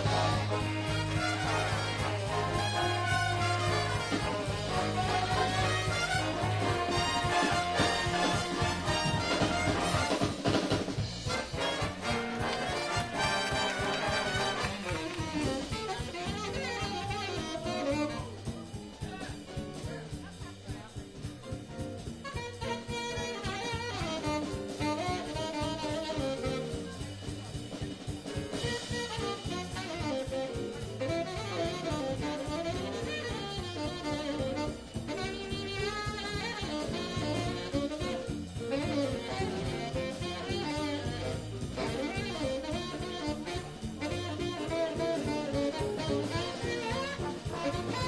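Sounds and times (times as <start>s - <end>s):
jazz big band playing: 0.0s - 48.0s.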